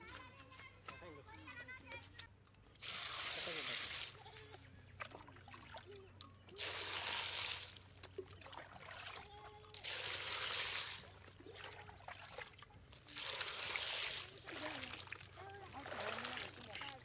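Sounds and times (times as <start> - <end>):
water splashing into a metal pot: 6.5 - 17.0.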